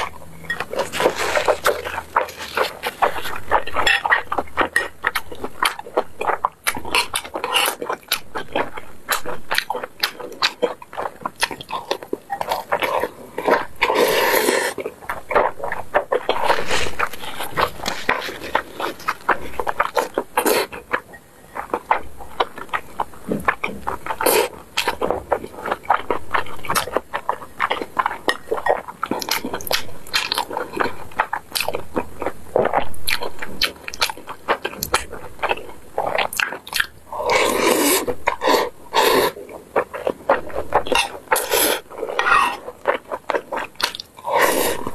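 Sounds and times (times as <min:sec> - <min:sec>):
chewing and wet mouth smacking: 0:00.0 - 0:44.9
metal spoon clinking in a bowl: 0:03.8 - 0:04.2.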